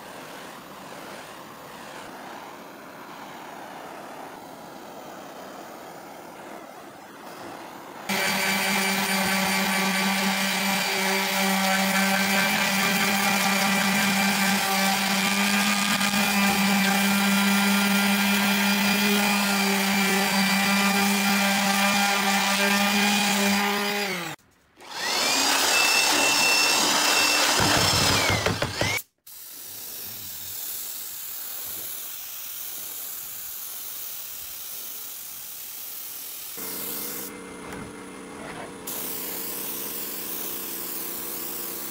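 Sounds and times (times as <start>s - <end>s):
electric palm sander running: 7.6s - 29.0s, 36.6s - 41.9s.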